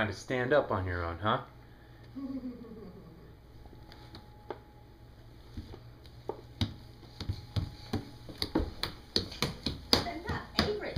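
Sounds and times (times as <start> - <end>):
faint room noise: 0.0 - 10.9
hands slapping wooden floor: 5.5 - 10.9.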